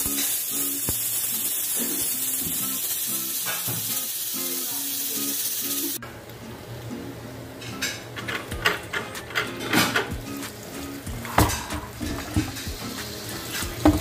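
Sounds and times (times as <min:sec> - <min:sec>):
pressure cooker hissing: 0:00.0 - 0:06.0, 0:08.5 - 0:14.0
background music: 0:08.2 - 0:14.0.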